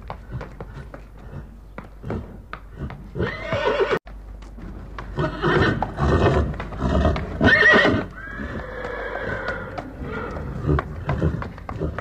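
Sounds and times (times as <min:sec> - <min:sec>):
hooves clopping: 0:00.0 - 0:12.0
horse whinnying: 0:03.1 - 0:04.0, 0:05.2 - 0:12.0.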